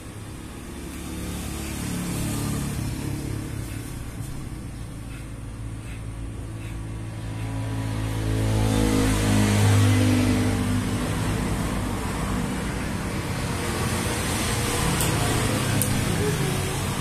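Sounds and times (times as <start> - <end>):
electric hair clippers buzzing: 0.8 - 3.2.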